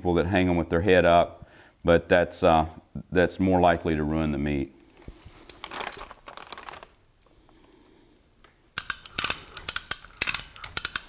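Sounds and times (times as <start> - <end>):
plastic sheeting crinkling: 4.9 - 7.0
sharp clicks and knocks: 8.4 - 11.0.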